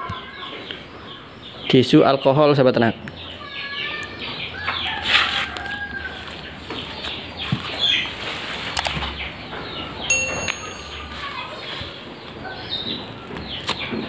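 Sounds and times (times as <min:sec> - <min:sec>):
chickens clucking: 0:00.0 - 0:14.0
rooster crowing: 0:04.5 - 0:06.4.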